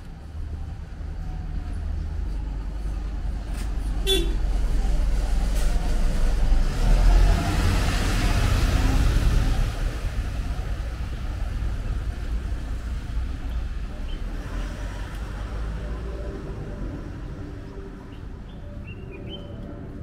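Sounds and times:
vehicle passing close by: 4.5 - 11.4.

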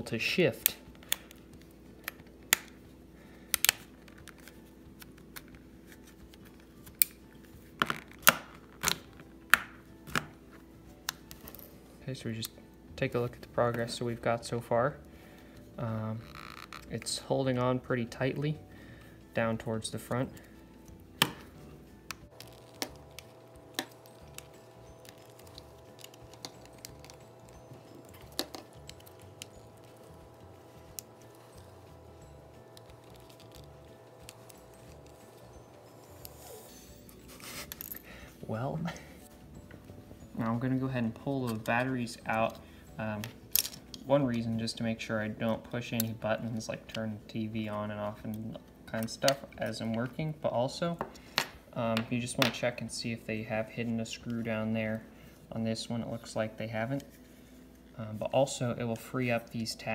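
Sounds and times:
plastic clicks and snaps: 0.6 - 1.4, 2.0 - 2.8, 3.5 - 5.6.

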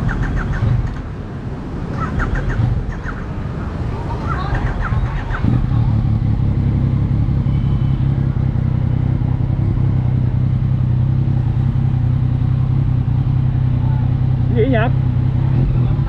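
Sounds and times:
motorcycle engine running steadily: 5.4 - 16.0.

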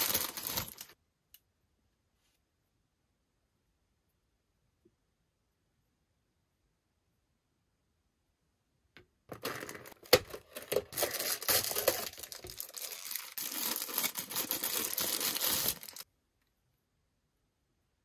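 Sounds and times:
tissue paper crinkling: 0.0 - 1.0, 10.3 - 16.0.

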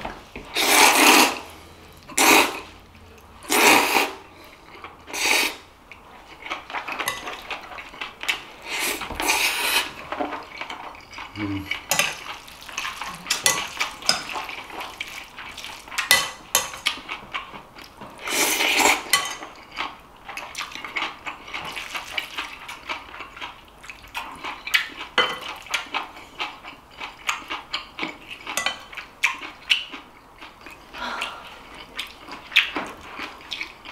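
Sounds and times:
noodles being slurped: 0.5 - 1.5.

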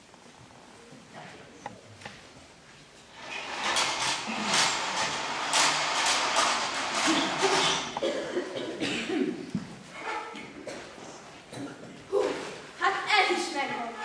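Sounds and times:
stage curtain drawn along rail: 3.0 - 8.0.

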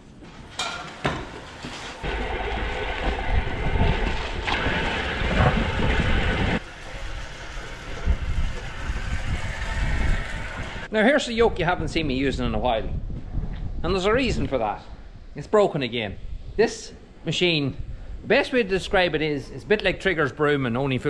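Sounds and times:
small petrol engine running: 5.0 - 10.9.

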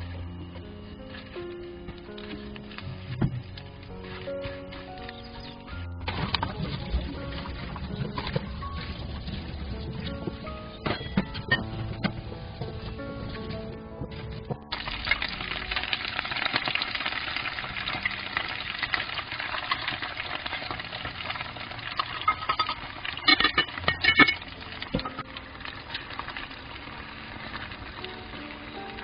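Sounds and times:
onions sizzling in oil: 14.7 - 29.0.

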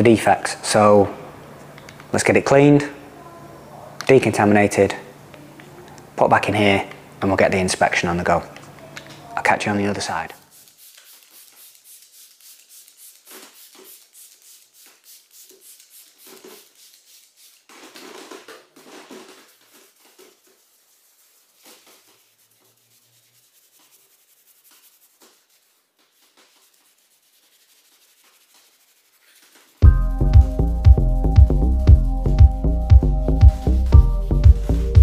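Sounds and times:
faint rhythmic rubbing strokes: 10.3 - 35.0.

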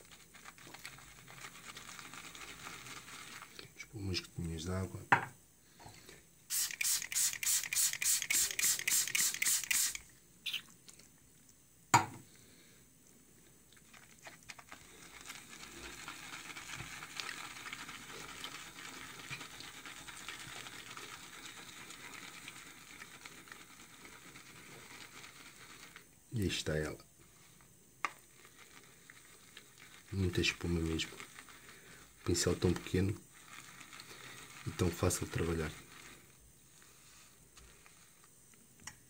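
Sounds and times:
brush scrubbing soap: 0.0 - 3.8, 6.5 - 10.0, 13.8 - 26.9, 27.6 - 38.3
brush swirling lather in bowl: 0.0 - 4.6, 6.5 - 10.1, 13.8 - 38.4.

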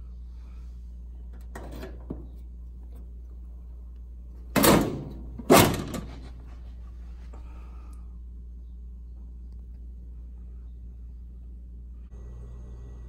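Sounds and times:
metal panel clunks: 4.5 - 6.4
metal panel rattle: 4.5 - 6.4.

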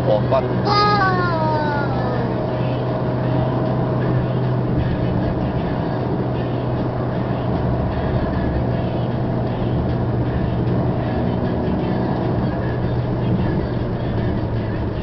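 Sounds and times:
car engine hum: 0.0 - 15.0.

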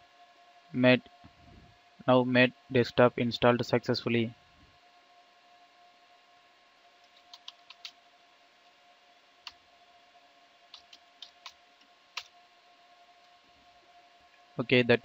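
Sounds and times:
faint electrical hum: 0.0 - 15.0
keyboard keys tapping: 7.2 - 7.9, 10.7 - 11.6.

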